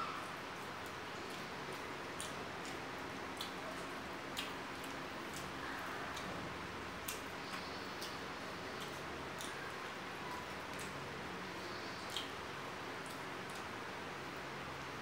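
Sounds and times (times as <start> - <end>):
person chewing food: 8.8 - 9.6.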